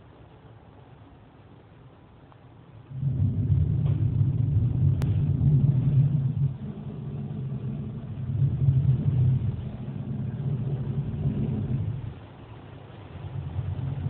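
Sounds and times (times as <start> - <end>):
car wash machinery rumbling: 2.8 - 14.0.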